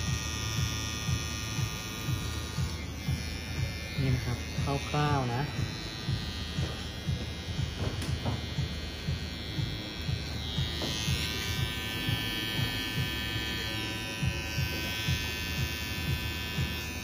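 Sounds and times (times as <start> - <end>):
background music with low beat: 0.0 - 17.0
hair trimmer buzzing: 0.0 - 17.0.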